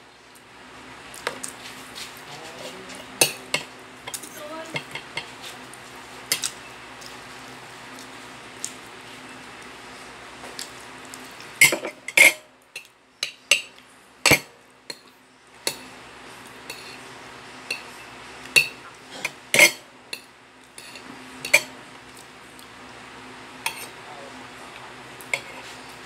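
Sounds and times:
spoon and fork clinking on plate: 0:18.6 - 0:18.8, 0:19.6 - 0:21.7, 0:23.7 - 0:23.9.

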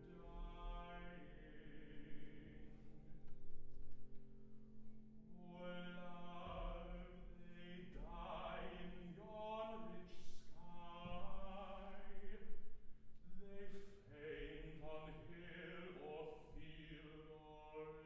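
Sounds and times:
baritone singing with vibrato: 0:05.4 - 0:12.6, 0:13.2 - 0:18.0.

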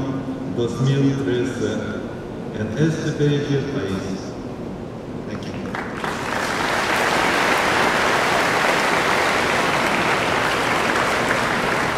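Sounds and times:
large audience applauding: 0:05.7 - 0:11.9.

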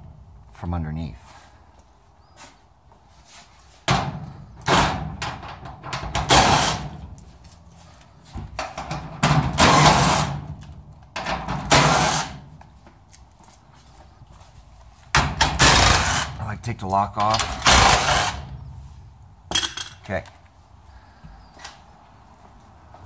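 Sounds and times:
power driver removing screws: 0:17.2 - 0:18.5.

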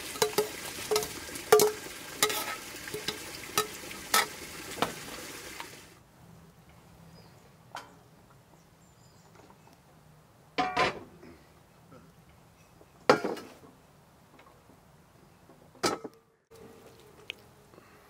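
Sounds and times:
metal cookware clinking: 0:00.0 - 0:04.3.

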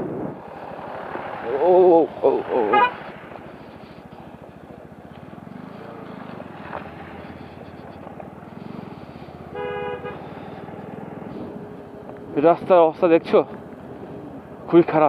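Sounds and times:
vehicle horn beep: 0:02.7 - 0:03.0, 0:09.4 - 0:10.3
motorcycle engine running: 0:03.0 - 0:12.5.

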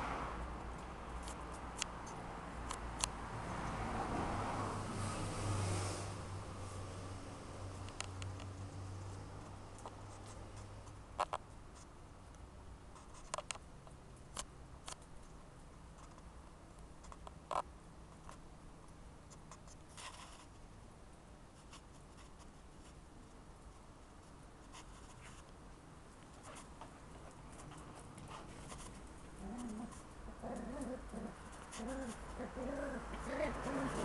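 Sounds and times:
puppy whining and grunting: 0:29.4 - 0:34.0.

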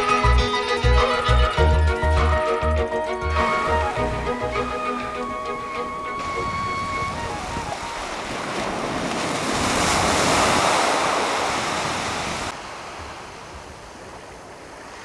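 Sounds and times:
wind on microphone: 0:03.4 - 0:15.0
small waves breaking on beach: 0:06.2 - 0:15.0.

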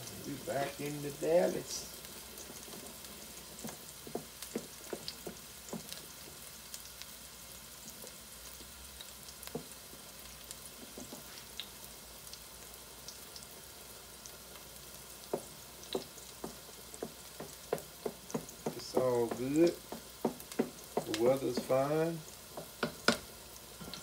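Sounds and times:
boiling water: 0:00.0 - 0:24.0
onions sizzling in oil: 0:00.0 - 0:24.0
wooden spoon knocking against pot: 0:03.6 - 0:06.0, 0:15.3 - 0:21.9, 0:22.5 - 0:23.3.

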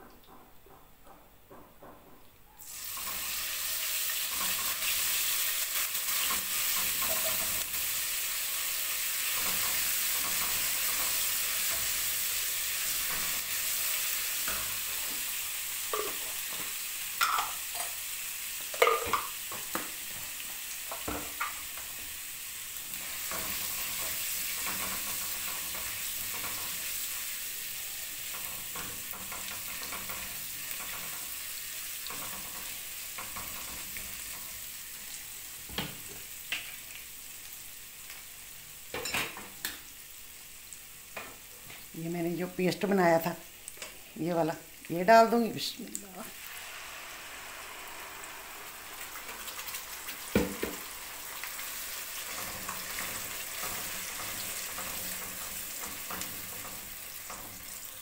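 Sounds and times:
spices sizzling in hot oil: 0:02.6 - 0:58.0
spatula scraping and tapping pan: 0:09.3 - 0:12.2, 0:12.9 - 0:13.5, 0:14.4 - 0:18.0, 0:23.1 - 0:26.9, 0:28.2 - 0:31.4, 0:32.0 - 0:34.6, 0:52.2 - 0:57.9.

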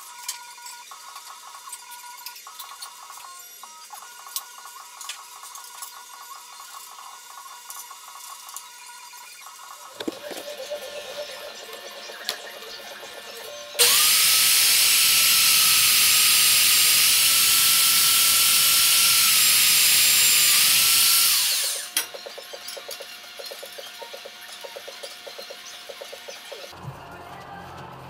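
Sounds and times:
drill press whining through steel: 0:09.9 - 0:25.4.

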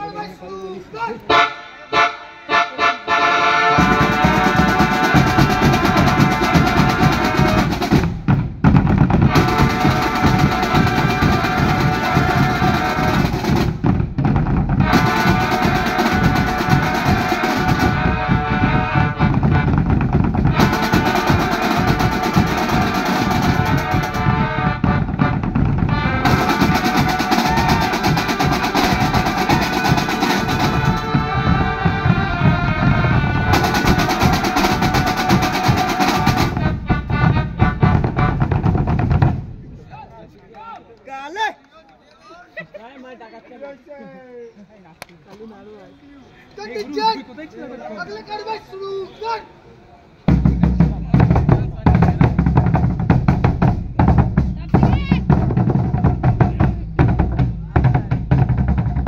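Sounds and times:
marching drum band playing: 0:03.1 - 0:39.7, 0:50.3 - 0:59.0
snare and bass drums beating: 0:03.8 - 0:39.6, 0:50.3 - 0:59.0.

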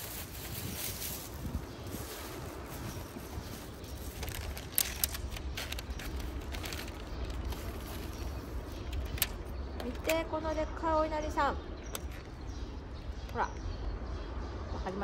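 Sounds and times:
wind rumble on microphone: 0:00.0 - 0:15.0
plastic food tray crinkling: 0:03.2 - 0:10.1.

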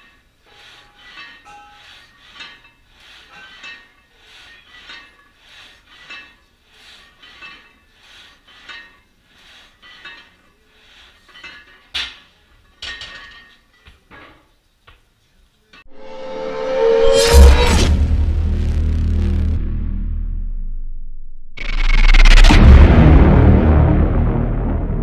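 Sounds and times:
metal clanks: 0:00.0 - 0:10.6, 0:11.2 - 0:14.5.

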